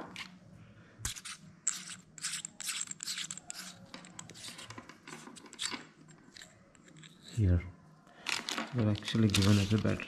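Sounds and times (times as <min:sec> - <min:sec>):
plastic adapter rustling and scraping: 0:02.4 - 0:07.4, 0:08.3 - 0:10.0.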